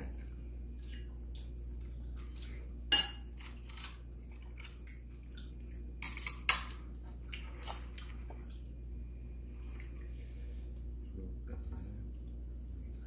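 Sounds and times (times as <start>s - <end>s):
utensils clinking against bowls: 2.9s - 4.0s, 6.0s - 6.8s.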